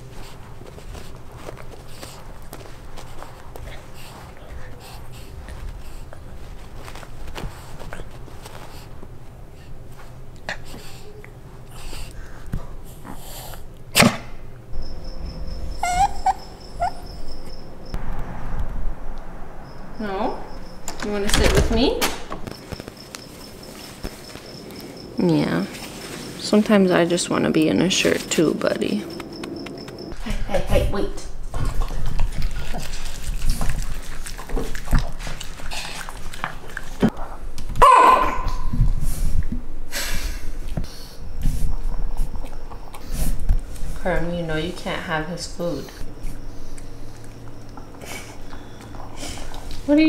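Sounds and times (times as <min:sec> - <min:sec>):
dog chewing and licking food: 0:00.0 - 0:13.0, 0:31.4 - 0:37.4, 0:45.6 - 0:49.8
dog whining: 0:14.8 - 0:17.9, 0:37.8 - 0:38.8.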